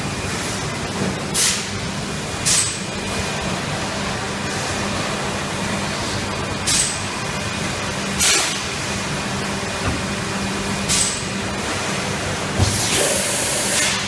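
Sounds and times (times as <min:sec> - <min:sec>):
machine mechanical hum: 0:00.0 - 0:14.0
sharp hisses of air: 0:12.7 - 0:14.0.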